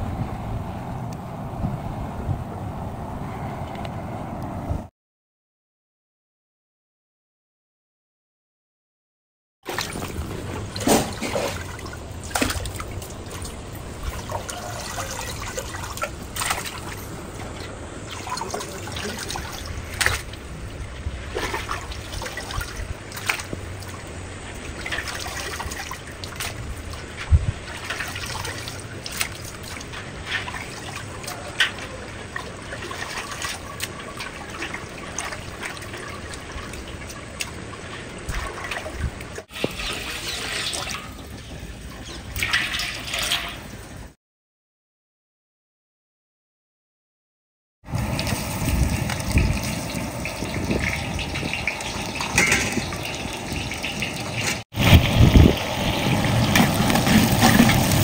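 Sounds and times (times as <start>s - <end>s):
water trickling and splashing: 9.7s - 44.1s, 47.9s - 58.0s.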